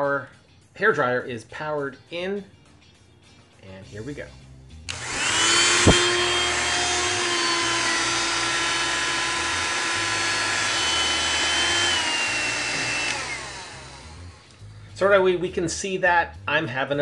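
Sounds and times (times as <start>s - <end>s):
hair dryer running: 4.9s - 14.6s.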